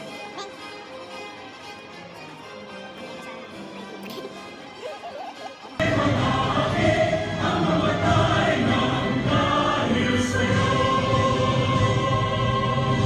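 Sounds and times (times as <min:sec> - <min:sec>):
musical accompaniment: 0:00.0 - 0:13.0
choir singing: 0:05.6 - 0:13.0.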